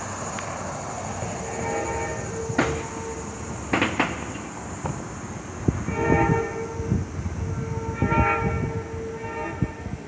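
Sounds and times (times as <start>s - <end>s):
passing train rumble: 0.0s - 10.0s
train horn chord blast: 1.5s - 3.3s, 5.9s - 10.0s
sharp knocks: 2.6s - 3.0s, 3.7s - 5.0s.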